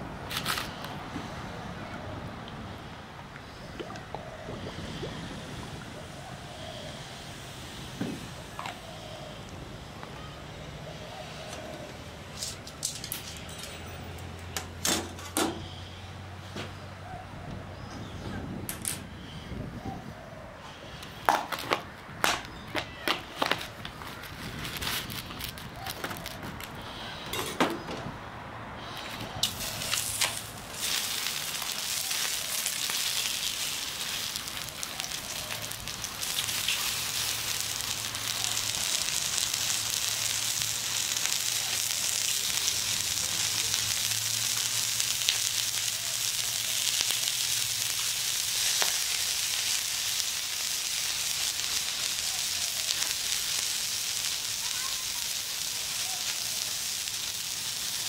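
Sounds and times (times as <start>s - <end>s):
sausages sizzling on hotplate: 5.4s - 9.2s, 28.8s - 58.0s.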